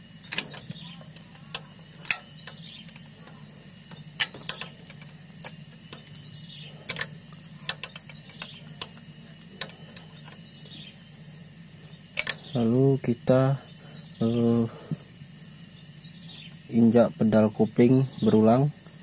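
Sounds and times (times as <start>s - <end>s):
steady low hum: 0.0s - 19.0s
spanner metallic clicks: 0.2s - 10.9s, 11.8s - 12.8s.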